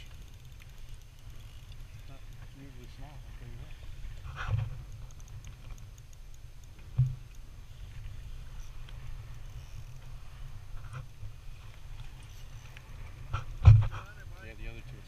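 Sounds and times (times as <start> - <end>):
fishing reel ticking: 0.0 - 10.3
dull thump: 13.6 - 13.9.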